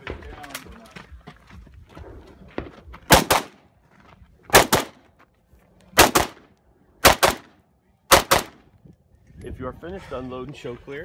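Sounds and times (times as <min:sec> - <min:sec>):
rifle shots: 0:03.1 - 0:03.6, 0:04.5 - 0:05.0, 0:06.0 - 0:08.6.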